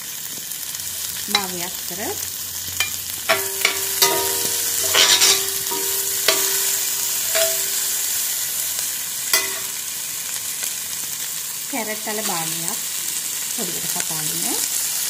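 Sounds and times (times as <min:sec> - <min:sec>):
vegetables sizzling in oil: 0:00.0 - 0:15.0
spatula clinking on pot: 0:01.3 - 0:01.8, 0:02.8 - 0:08.3, 0:09.4 - 0:09.8
metal spatula scraping pot: 0:02.8 - 0:08.2.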